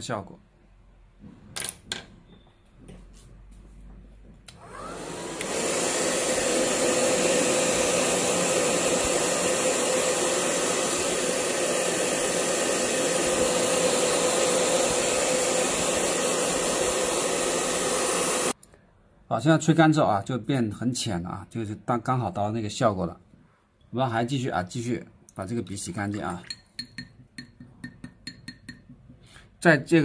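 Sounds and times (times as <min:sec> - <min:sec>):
hair dryer blowing: 0:04.5 - 0:18.6.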